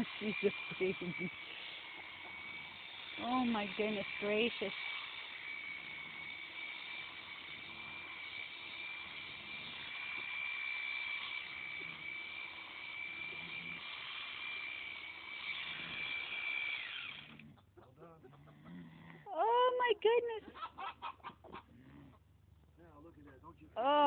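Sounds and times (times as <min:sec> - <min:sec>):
electric shears whining: 0:00.0 - 0:17.7.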